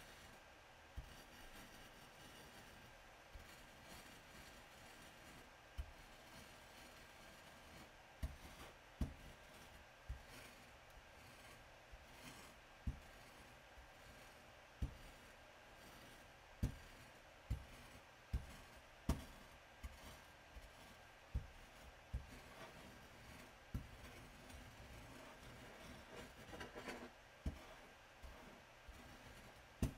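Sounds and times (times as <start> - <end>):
pestle rubbing on glass: 22.1 - 29.9.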